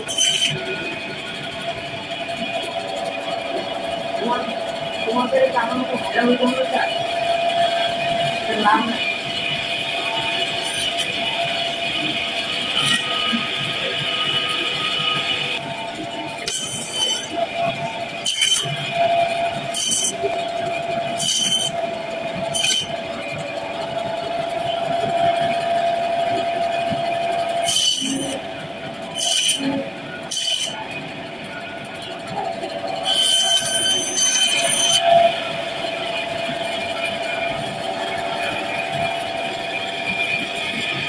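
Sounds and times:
band saw whine: 0:00.0 - 0:41.0
saw blade rasping through bone: 0:18.2 - 0:18.7, 0:21.2 - 0:21.7.

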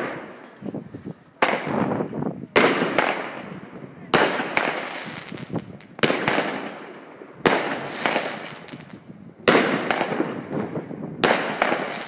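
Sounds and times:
firework shots banging: 0:01.4 - 0:03.5, 0:04.1 - 0:12.0
firework hiss: 0:11.4 - 0:12.0.

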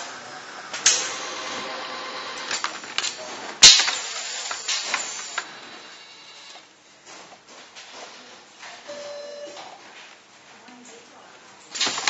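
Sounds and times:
pneumatic machine clicking: 0:00.7 - 0:01.5, 0:02.4 - 0:05.5, 0:11.7 - 0:12.0.

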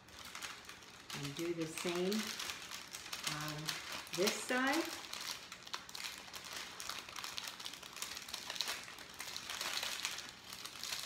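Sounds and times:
parchment paper crinkling: 0:00.0 - 0:11.0.

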